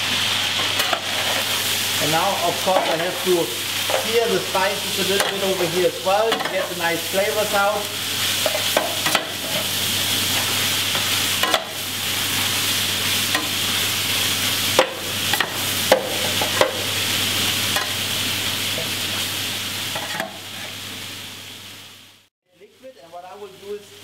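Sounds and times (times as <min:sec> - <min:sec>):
chicken sizzling in a pan: 0:00.0 - 0:24.0
metal spatula scraping a pan: 0:00.5 - 0:01.6.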